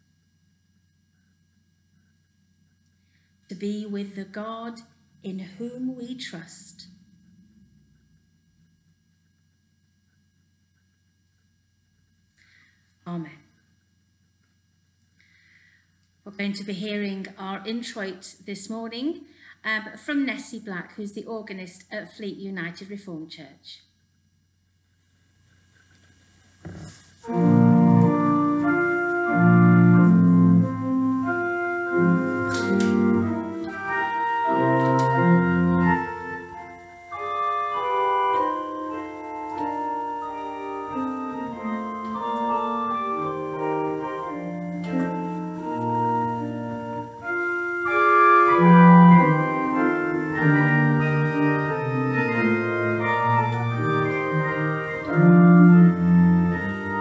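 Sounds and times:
church organ chords: 27.2 - 57.0.

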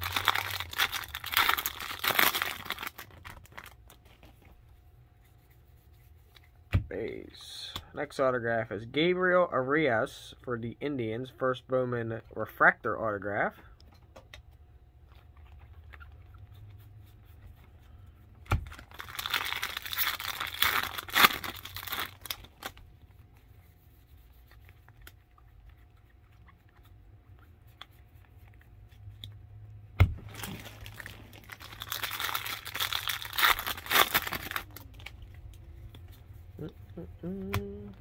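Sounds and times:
foil wrappers tearing and crinkling: 0.0 - 4.4, 18.6 - 22.8, 30.3 - 35.3.

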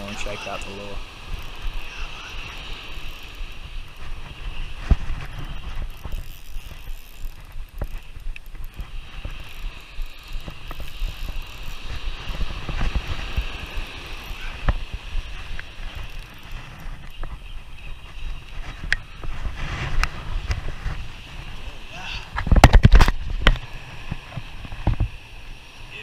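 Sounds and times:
wind buffeting microphone: 0.0 - 26.0
fishing reel gears whirring: 0.1 - 4.8, 5.4 - 17.2.

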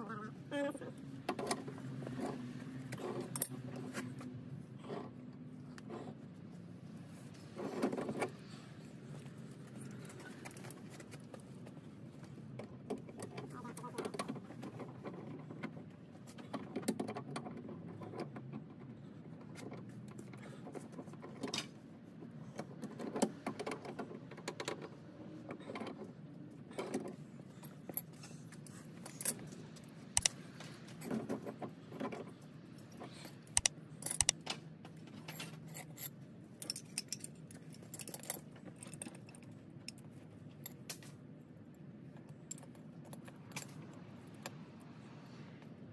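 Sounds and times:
metallic clinks of pipe fittings: 35.3 - 40.0.

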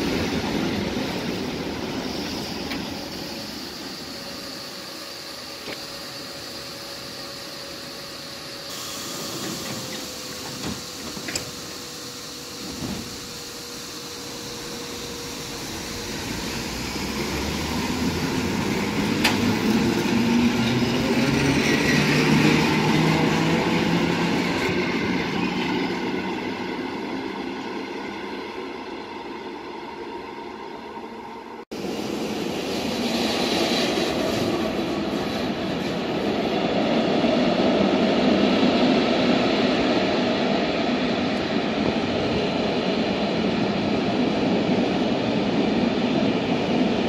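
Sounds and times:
train rumble: 0.0 - 6.2, 8.5 - 47.0
traction motors humming: 0.0 - 32.4.

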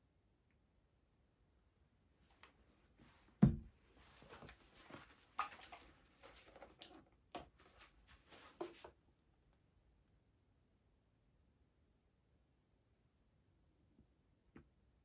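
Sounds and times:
plastic bottles clicking and knocking: 5.4 - 7.6.

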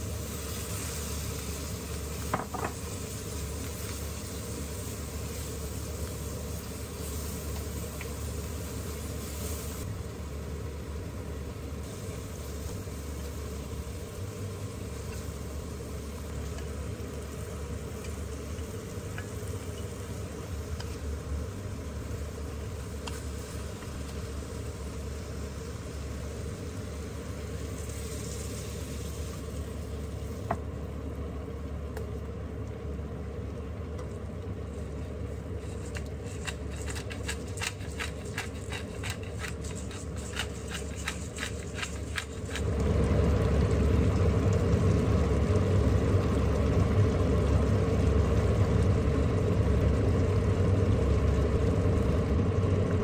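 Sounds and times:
kitchen fan humming: 0.0 - 53.0
pepper mill grinding: 35.6 - 42.7.

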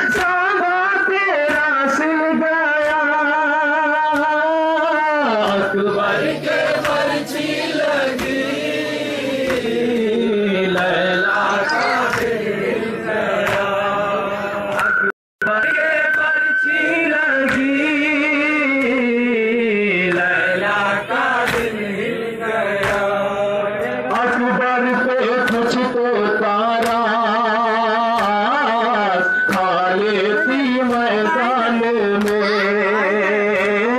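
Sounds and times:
men chanting a lament: 0.0 - 33.9
chest-beating slaps: 10.7 - 12.6, 13.3 - 13.8, 14.7 - 15.0, 21.4 - 21.8, 22.8 - 23.2, 26.7 - 27.1, 28.1 - 28.6, 29.3 - 29.9.

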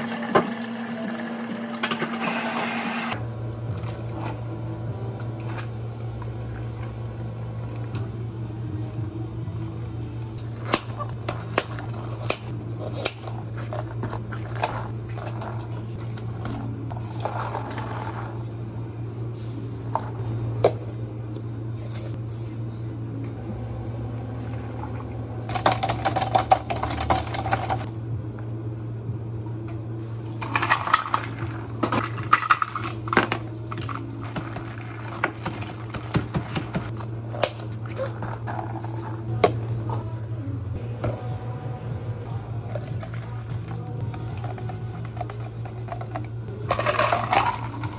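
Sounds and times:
low hum of equipment: 0.0 - 47.9
plastic cups and ice clinking: 25.5 - 27.9, 42.7 - 47.9
ice cubes rattling into cup: 46.7 - 47.9.

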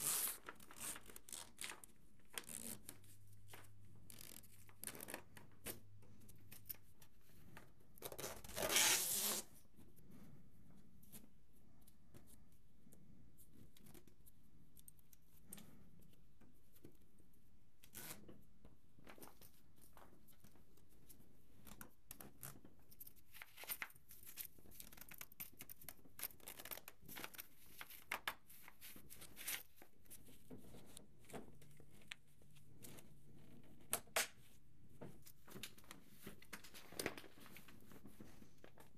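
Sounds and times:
loud ripping sound: 8.5 - 9.5.

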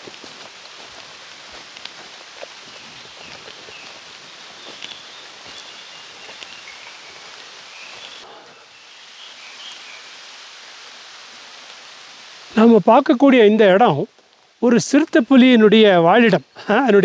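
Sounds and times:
small clicks and rustles: 0.0 - 8.2, 14.1 - 14.6
steady forest hiss: 0.0 - 17.0.

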